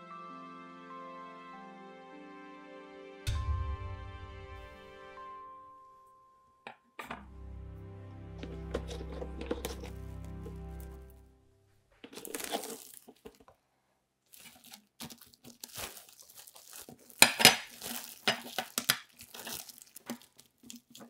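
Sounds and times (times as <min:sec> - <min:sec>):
plastic cling film crinkling: 0:12.0 - 0:13.6, 0:14.2 - 0:21.0.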